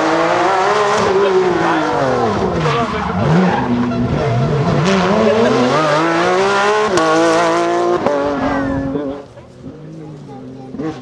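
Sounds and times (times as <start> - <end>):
rally car engine accelerating hard: 0.0 - 11.0.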